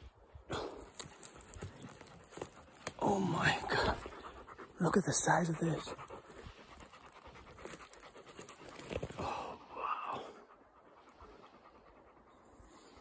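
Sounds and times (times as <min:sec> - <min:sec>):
dog panting: 0:00.9 - 0:13.0.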